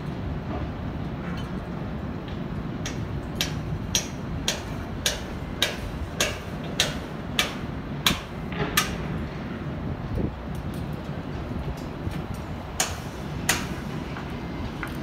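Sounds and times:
hammer striking steel: 2.8 - 9.1, 12.8 - 14.0.

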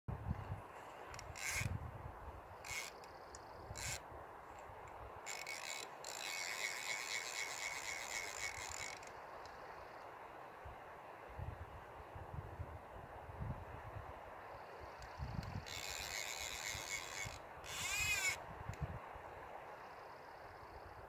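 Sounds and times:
fishing reel drag ratcheting: 1.1 - 1.8, 2.6 - 4.0, 4.6 - 9.2, 15.0 - 18.4.

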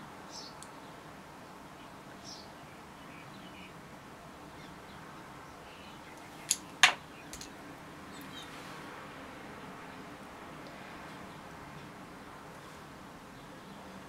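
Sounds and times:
sharp clicks of small objects: 6.5 - 7.5.

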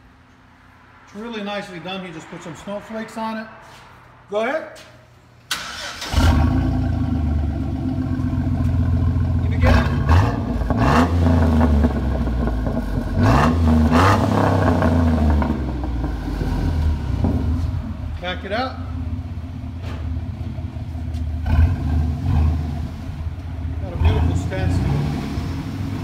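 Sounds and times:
car engine idling and revving: 6.0 - 26.0.

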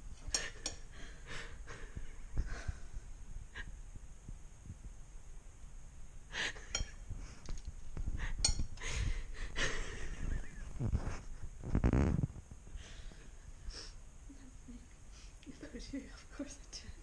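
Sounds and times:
woman laughing: 8.8 - 10.8, 15.5 - 16.3.

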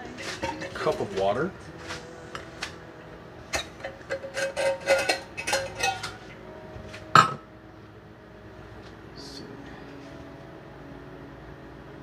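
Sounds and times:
dishes and kitchenware clattering: 0.0 - 1.4, 3.5 - 6.3, 7.1 - 7.4.

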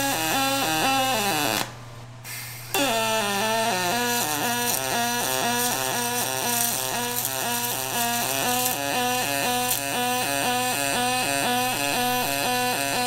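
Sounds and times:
welding arc buzzing: 0.0 - 13.0.

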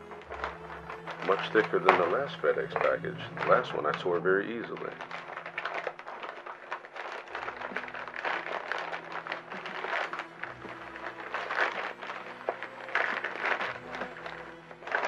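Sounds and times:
plastic mailer crinkling and tearing: 0.0 - 15.0.

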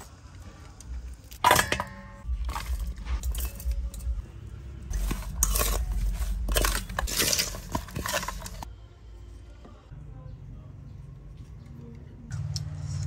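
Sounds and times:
spoon tossing food in metal bowl: 4.9 - 8.7.

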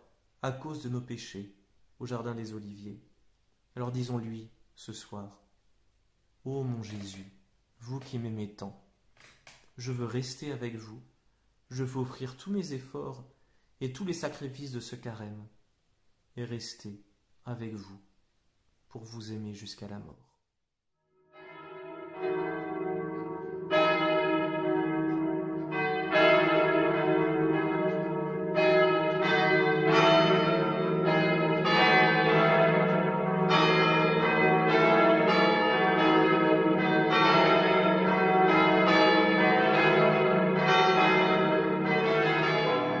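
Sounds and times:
church bells ringing: 21.3 - 43.0.

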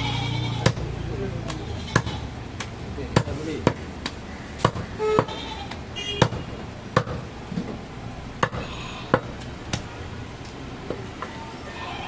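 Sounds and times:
market background noise: 0.0 - 12.0
cleaver chopping on wooden block: 1.5 - 6.4, 7.0 - 7.3, 8.4 - 9.9.

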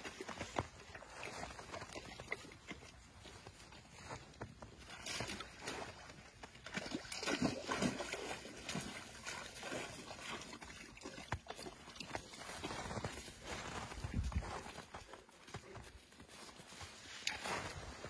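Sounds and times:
dog splashing in water: 4.9 - 12.8.

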